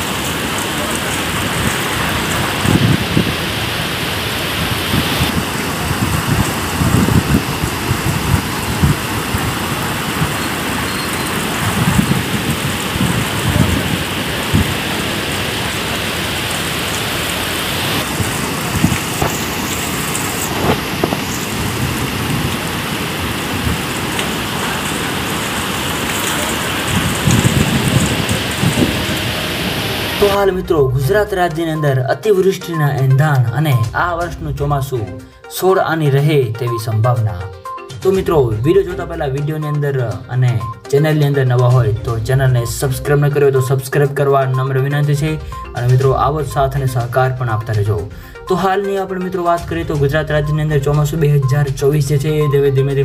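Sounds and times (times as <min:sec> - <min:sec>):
low rumbling gusts: 0:00.0 - 0:31.4
heavy rain pouring: 0:00.0 - 0:35.3, 0:38.0 - 0:48.8, 0:49.6 - 0:53.0.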